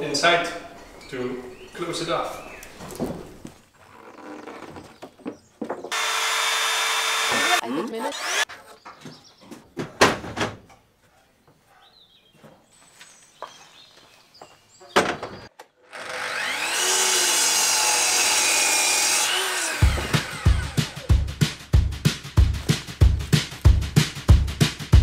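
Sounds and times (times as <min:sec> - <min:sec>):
miter saw cutting: 0:05.9 - 0:08.5, 0:15.8 - 0:21.1
background music drum beat: 0:19.8 - 0:25.0.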